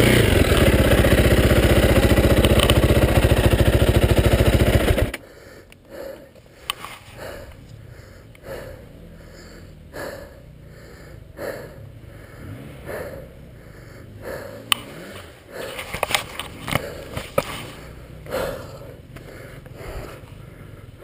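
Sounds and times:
dirt bike engine idling: 0.0 - 21.0
sharp clicks: 2.2 - 3.1
heavy rhythmic breathing: 2.8 - 21.0.

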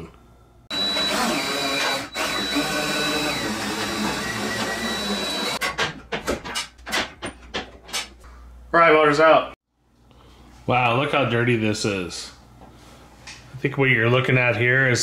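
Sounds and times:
power tool whining: 0.7 - 5.6
clicks and knocks: 5.6 - 8.2.

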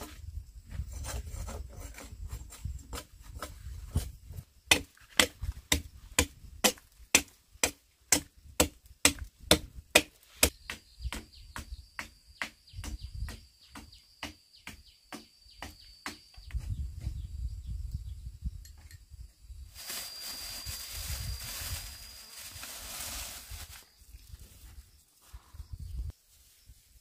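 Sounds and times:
tool chopping timber beam: 4.7 - 16.2.

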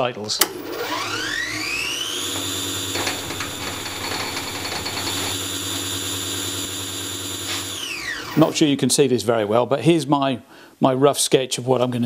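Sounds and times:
electric motor whining: 0.4 - 8.8.

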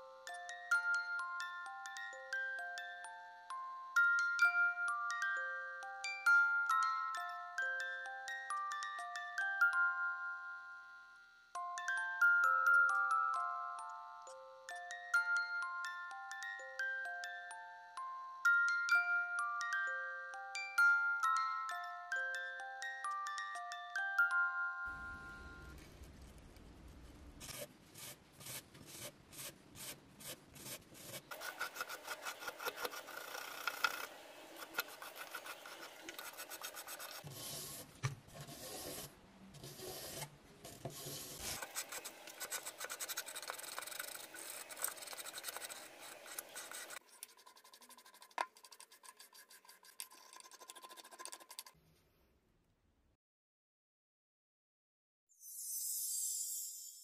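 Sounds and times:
brush scrubbing metal: 27.6 - 51.8.

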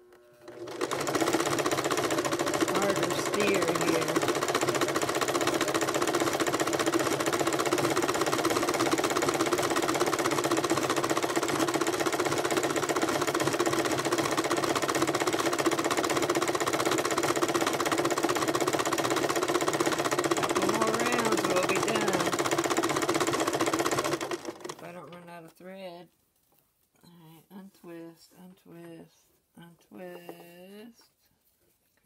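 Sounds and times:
sewing machine stitching: 0.3 - 25.2.

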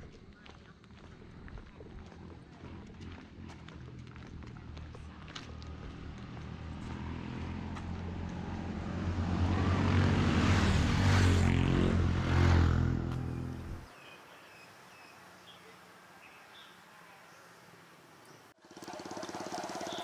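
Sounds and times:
vehicle engine running: 1.0 - 8.9, 18.6 - 20.0.

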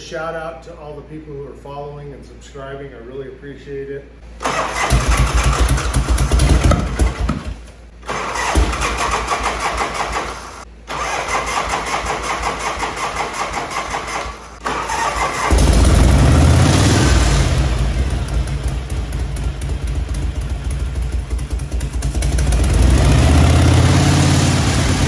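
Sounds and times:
motorcycle engine cranking: 4.4 - 23.8.

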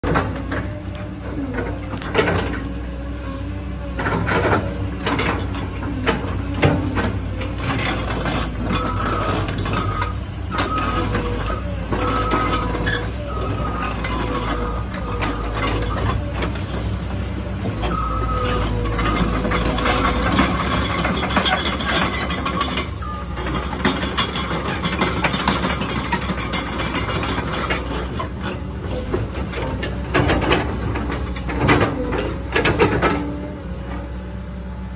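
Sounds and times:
excavator diesel engine running: 0.0 - 34.9
metal clanks and knocks: 18.6 - 33.5.

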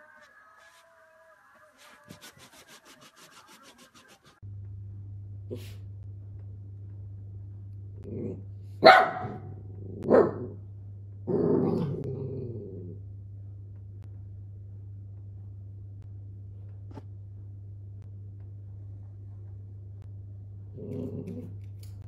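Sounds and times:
low hum: 3.3 - 22.0
puppy barking and growling: 8.0 - 10.6, 11.3 - 13.0.

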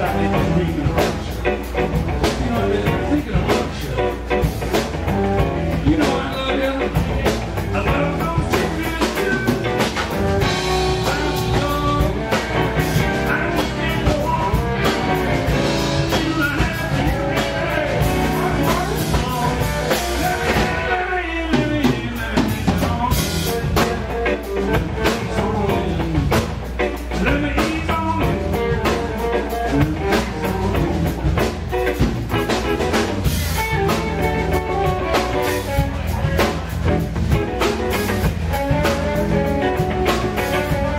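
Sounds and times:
drum kit beat: 0.0 - 40.9
electric guitar lead with bent notes: 0.0 - 40.9.

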